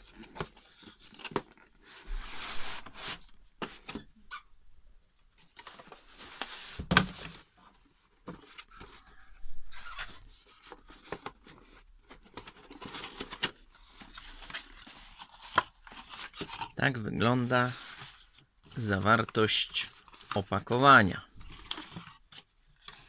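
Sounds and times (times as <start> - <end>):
cardboard rustling and scraping: 0.0 - 4.1, 5.4 - 16.8.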